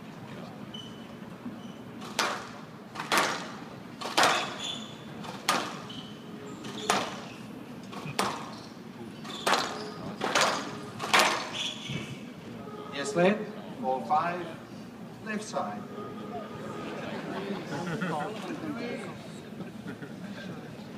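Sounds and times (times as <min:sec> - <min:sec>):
squash ball hits: 0:02.0 - 0:04.6, 0:05.3 - 0:05.9, 0:09.4 - 0:11.6.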